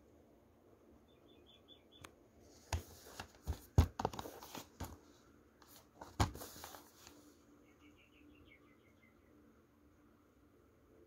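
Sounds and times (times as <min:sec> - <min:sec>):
plastic case being handled: 0:02.6 - 0:07.2.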